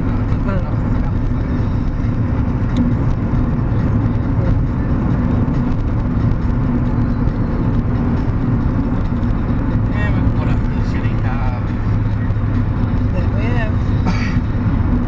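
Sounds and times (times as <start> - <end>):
car engine rumble: 0.0 - 15.0
tyre road noise: 0.0 - 15.0.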